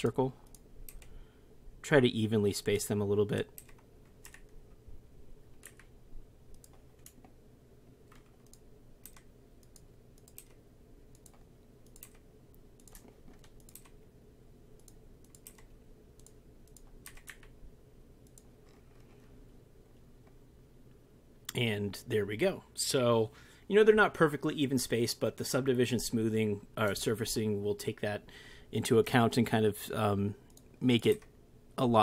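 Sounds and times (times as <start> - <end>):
low steady background hum: 0.0 - 32.0
mouse and keyboard clicking: 5.6 - 5.9, 8.1 - 12.2, 12.8 - 14.0, 14.8 - 17.5.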